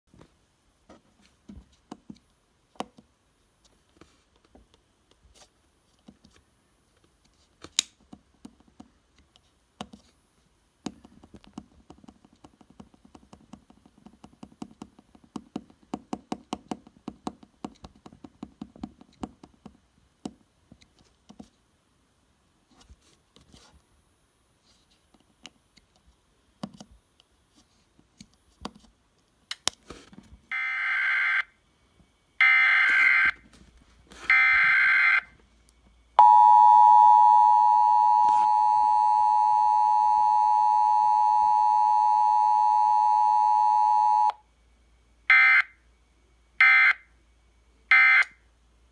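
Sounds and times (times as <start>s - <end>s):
two-tone attention signal: 36.2s - 44.3s.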